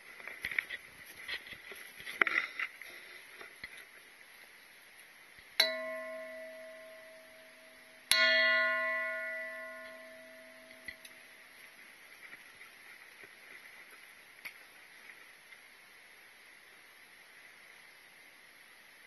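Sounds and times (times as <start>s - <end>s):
metal bell ringing: 5.6s - 11.4s.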